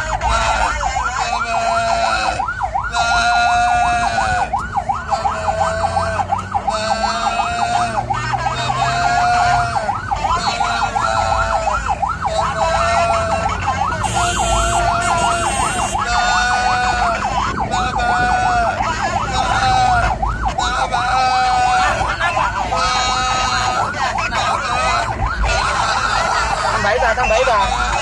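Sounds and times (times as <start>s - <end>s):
emergency vehicle siren: 0.0s - 28.0s
vehicle rumble: 0.0s - 28.0s.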